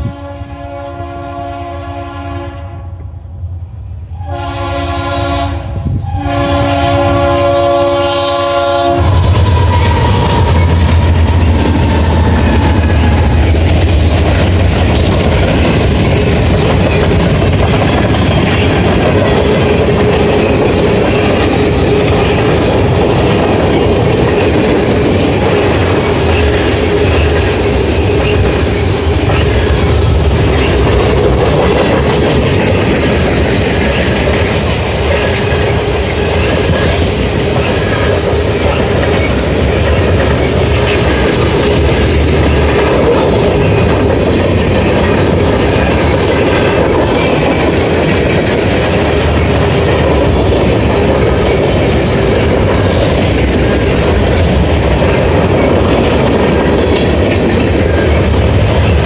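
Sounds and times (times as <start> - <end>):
locomotive air horn blasts: 0.0 - 3.0, 4.1 - 12.8
wheels clacking over rail joints: 8.7 - 59.0.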